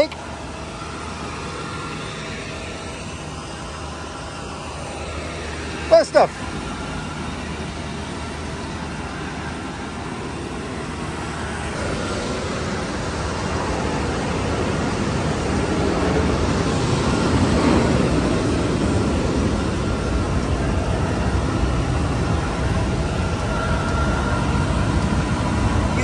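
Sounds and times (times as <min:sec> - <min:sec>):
jet aircraft engine rushing: 0:00.0 - 0:26.0.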